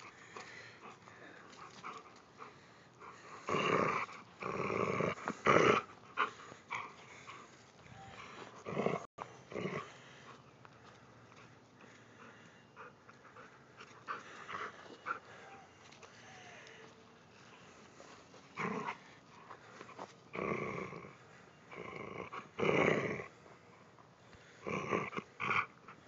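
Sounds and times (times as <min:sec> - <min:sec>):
dog growling: 0:03.0 - 0:10.3, 0:18.5 - 0:19.1, 0:19.9 - 0:23.5, 0:24.6 - 0:26.0.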